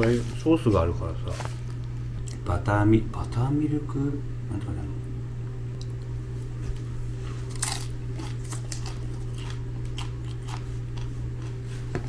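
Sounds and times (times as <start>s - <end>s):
steady low hum: 0.0s - 12.0s
crunchy chewing: 6.6s - 12.0s.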